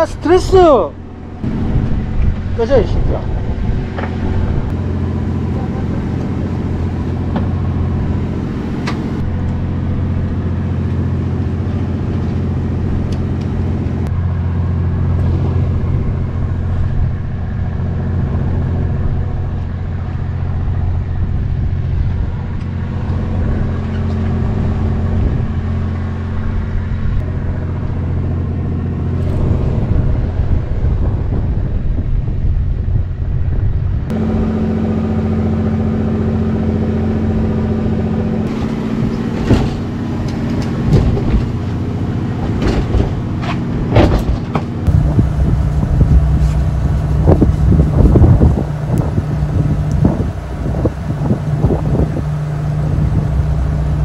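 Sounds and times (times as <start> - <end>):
boat engine humming: 0.0 - 54.0
higher steady tone: 34.1 - 39.2, 44.9 - 54.0.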